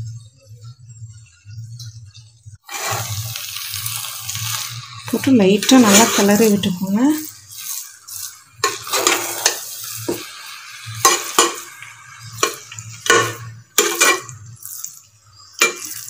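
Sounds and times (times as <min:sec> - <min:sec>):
metal ladle scraping rice in pot: 0:02.7 - 0:03.4, 0:05.6 - 0:10.2, 0:10.9 - 0:15.0, 0:15.6 - 0:16.0.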